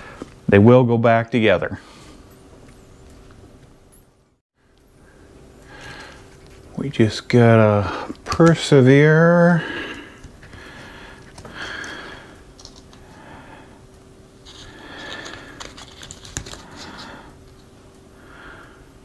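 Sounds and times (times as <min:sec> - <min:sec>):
close breathing: 0:05.0 - 0:06.4, 0:09.5 - 0:13.9, 0:14.5 - 0:15.8, 0:16.5 - 0:17.4, 0:18.1 - 0:19.0.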